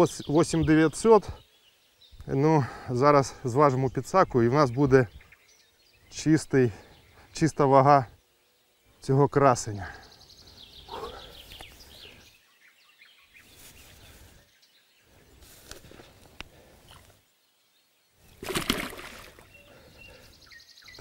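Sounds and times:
birds chirping: 0.0s - 21.0s
rustling and water sloshing: 18.2s - 19.7s
splash: 18.3s - 19.6s.

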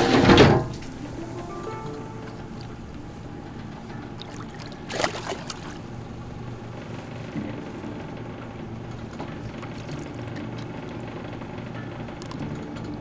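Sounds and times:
boat engine humming: 0.0s - 13.0s
light water sounds: 0.7s - 7.1s, 9.1s - 12.8s
fish splashing at water surface: 4.0s - 6.2s, 9.4s - 11.1s, 12.2s - 12.5s.

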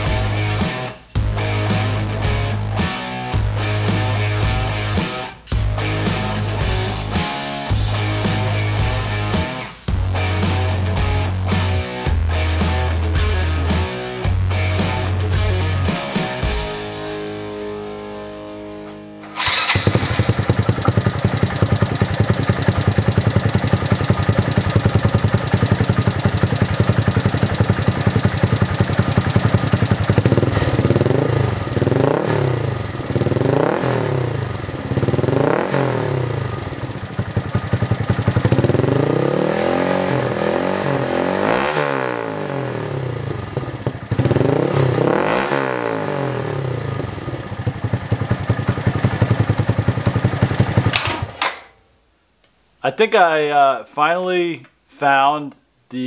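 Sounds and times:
motorcycle engine idling and revving: 0.0s - 17.6s, 19.3s - 51.5s.

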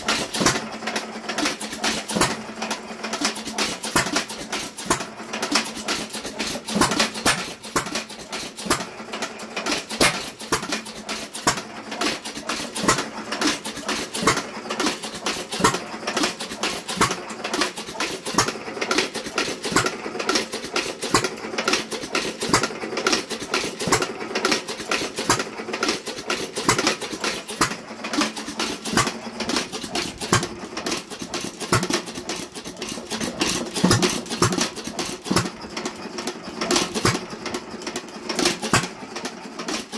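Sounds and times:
hit-and-miss engine clattering: 0.0s - 39.9s.

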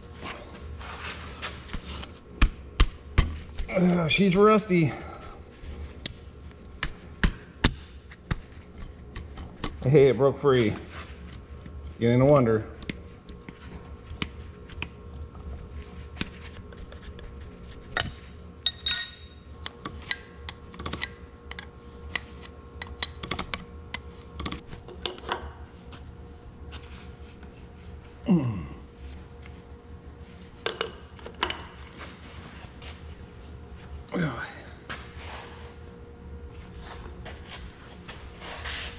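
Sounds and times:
ringing metal clink: 18.7s - 19.5s.

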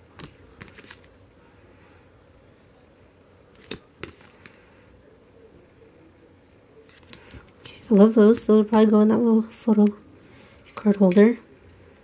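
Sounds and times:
photo cards clicking and tapping: 0.2s - 1.0s, 3.6s - 4.6s.

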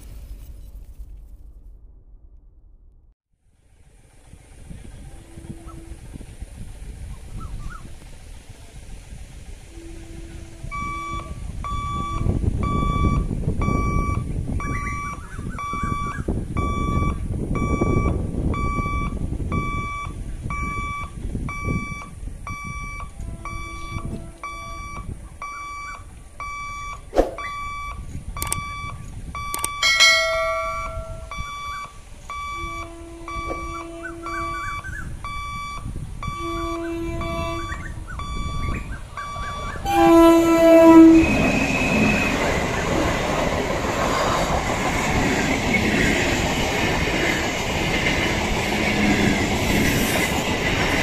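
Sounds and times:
wind rumble on microphone: 3.8s - 51.0s
level crossing alarm beeping: 10.7s - 42.6s.

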